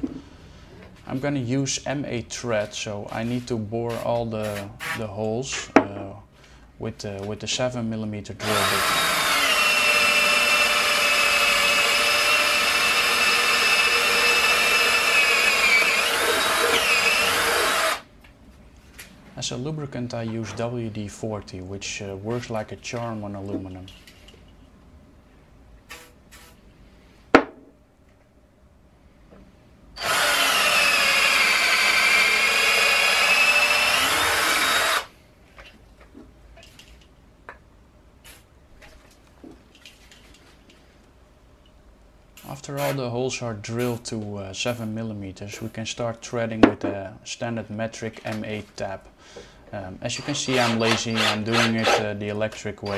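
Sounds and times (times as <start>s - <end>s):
cordless drill drilling into metal: 8.4s - 18.0s, 30.0s - 35.1s, 50.2s - 52.0s.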